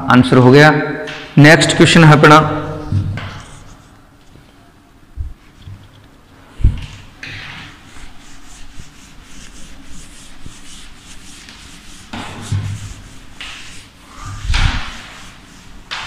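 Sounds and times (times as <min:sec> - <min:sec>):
duster rubbing a blackboard: 0:02.8 - 0:04.0, 0:07.4 - 0:16.0.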